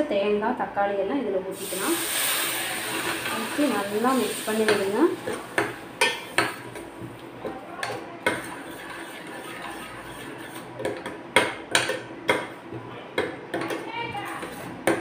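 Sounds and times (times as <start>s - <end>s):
spoon stirring thick gravy: 4.7s - 11.2s.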